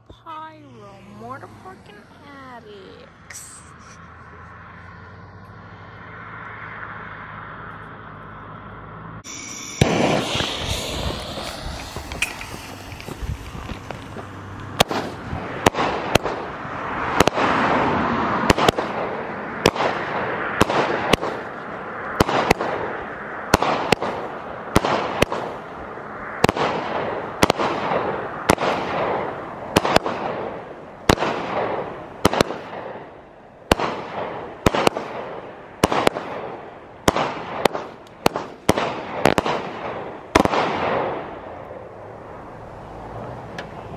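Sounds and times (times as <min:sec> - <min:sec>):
low hum: 0:00.0 - 0:15.6
firework hissing rush: 0:09.2 - 0:16.5
firework shots with crackling: 0:09.2 - 0:41.8.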